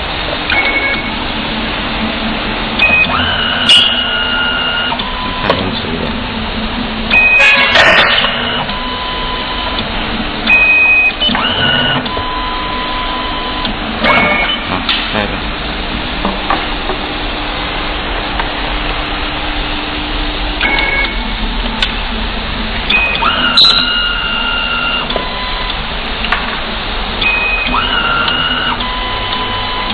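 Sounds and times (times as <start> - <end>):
machine motor hum: 0.0 - 29.9
stripping head whirring: 0.0 - 29.9.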